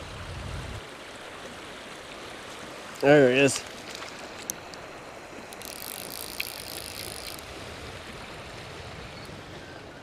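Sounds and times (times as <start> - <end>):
stream water rushing: 0.0 - 10.0
reel ticks: 3.8 - 4.8, 5.5 - 7.4
fly reel buzzing: 5.5 - 7.5.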